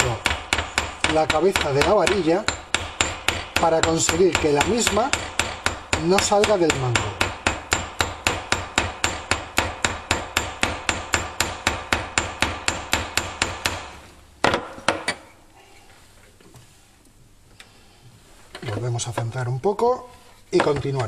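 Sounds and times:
hammer tapping on metal rod: 0.0s - 13.9s.

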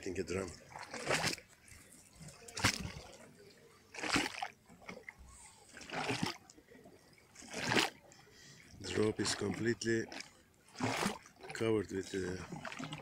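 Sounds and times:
waves splashing under a pier: 0.0s - 13.0s.

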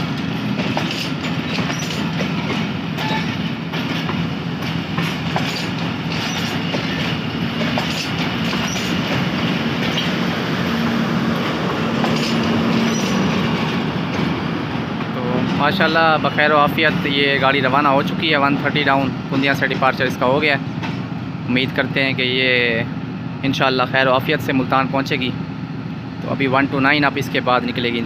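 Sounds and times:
train wheels clicking over rail joints: 0.0s - 16.1s, 16.8s - 21.2s
wheel squeal: 0.8s - 2.2s, 3.0s - 3.5s, 5.4s - 9.2s, 12.0s - 13.5s.

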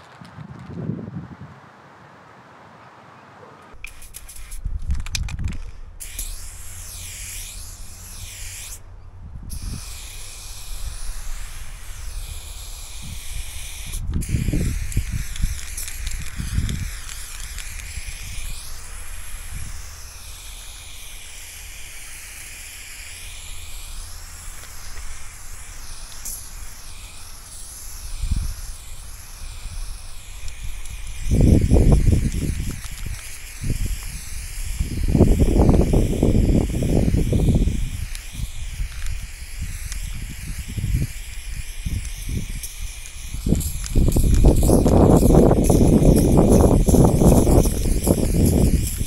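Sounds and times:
spray paint can hissing: 3.7s - 49.0s.

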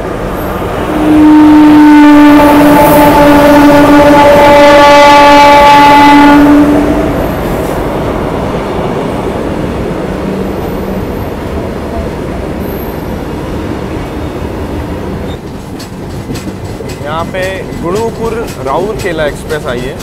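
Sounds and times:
train rumbling along track: 0.0s - 20.0s
train horn long note: 0.8s - 7.3s.

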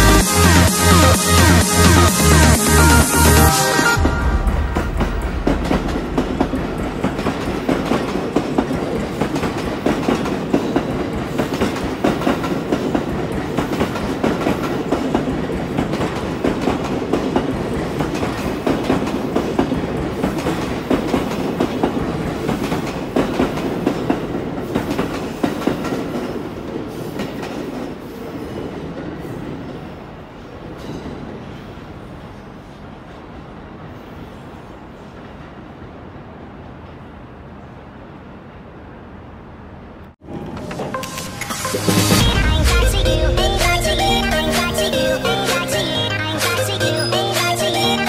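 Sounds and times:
train wheels clattering over rail joints: 4.9s - 29.8s.

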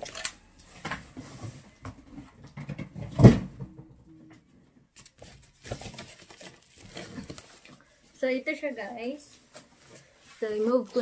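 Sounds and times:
packaging knocks and rustles: 5.0s - 7.8s.

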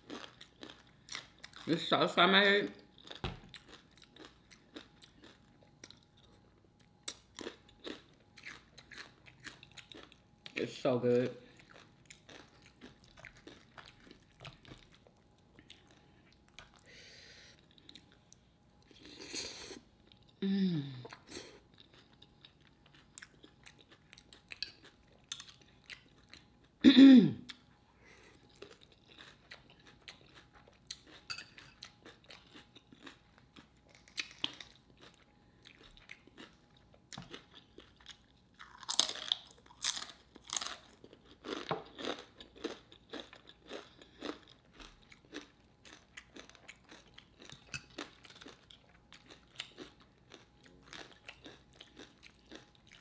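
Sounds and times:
chewing and crunching chips: 0.0s - 26.8s, 27.4s - 53.0s
person humming: 20.4s - 21.2s.

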